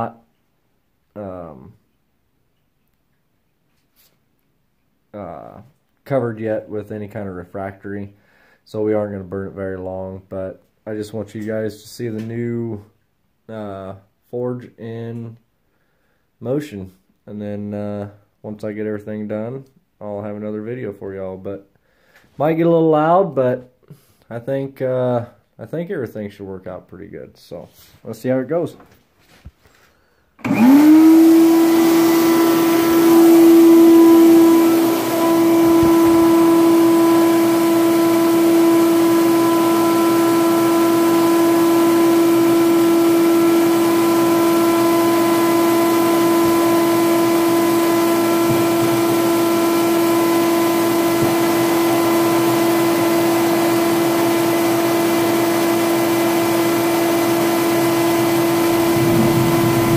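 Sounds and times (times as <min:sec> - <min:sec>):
electric air blower humming: 0:30.4 - 0:59.9
rushing air: 0:58.7 - 0:59.9.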